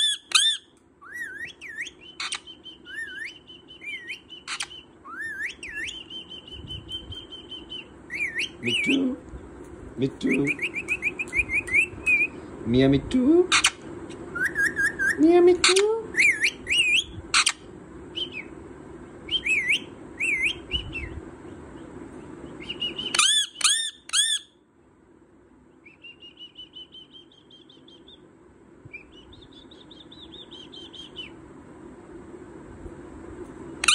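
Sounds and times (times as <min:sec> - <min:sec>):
parakeet chirping: 0:00.0 - 0:09.0, 0:10.1 - 0:12.4, 0:13.5 - 0:18.5, 0:19.3 - 0:24.6, 0:25.8 - 0:28.3, 0:28.9 - 0:31.4
parakeet chattering: 0:00.0 - 0:09.2, 0:13.5 - 0:13.8, 0:14.4 - 0:17.7, 0:22.5 - 0:24.5.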